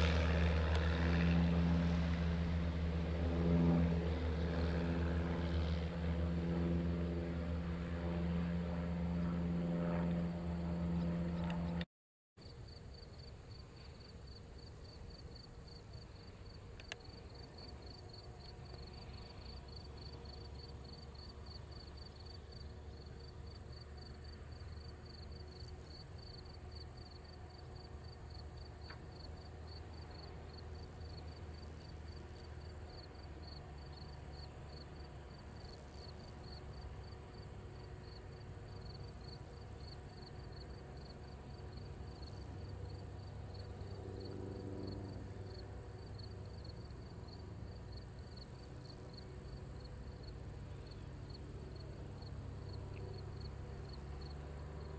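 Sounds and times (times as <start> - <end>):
distant light plane engine drone: 0.0 - 54.9
insects chirping: 12.4 - 54.9.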